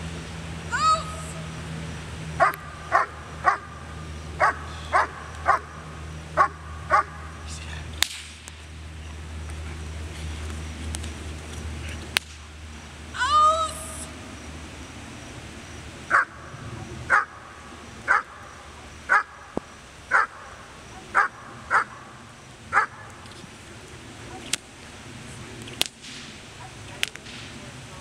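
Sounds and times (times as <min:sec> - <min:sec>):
dog barking: 0:02.4 - 0:03.7, 0:04.4 - 0:05.7, 0:06.4 - 0:07.3, 0:16.1 - 0:16.3, 0:17.1 - 0:17.4, 0:18.1 - 0:18.4, 0:19.1 - 0:19.3, 0:20.1 - 0:22.1, 0:22.7 - 0:23.1
sharp cracks: 0:08.0 - 0:08.7, 0:10.9 - 0:12.5, 0:24.5 - 0:24.8, 0:25.6 - 0:26.4, 0:27.0 - 0:27.6.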